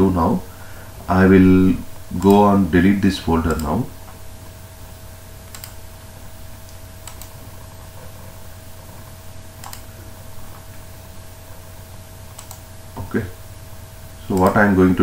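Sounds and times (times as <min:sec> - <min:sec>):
steady low hum: 0:00.0 - 0:15.0
sharp computer clicks: 0:02.1 - 0:02.7, 0:03.4 - 0:04.6, 0:05.5 - 0:05.8, 0:06.6 - 0:07.4, 0:09.6 - 0:09.9, 0:12.3 - 0:13.1, 0:14.3 - 0:14.8.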